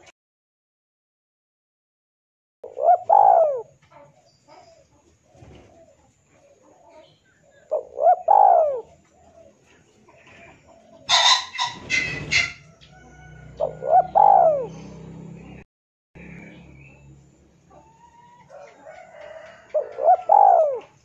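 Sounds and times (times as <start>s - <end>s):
dove cooing: 2.6s - 15.0s, 17.7s - 21.0s
harsh high bird calls: 11.1s - 12.7s.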